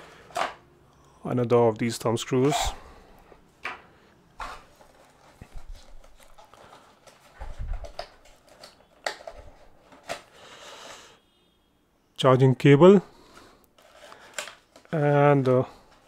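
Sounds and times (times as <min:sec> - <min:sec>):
cardboard packaging rustling: 0:04.4 - 0:11.0, 0:13.8 - 0:16.0.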